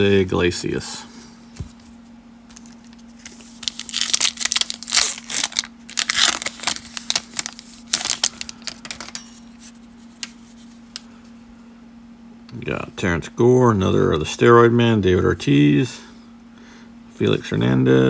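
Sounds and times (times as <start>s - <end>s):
plastic wrapper crinkling and tearing: 2.5s - 9.2s.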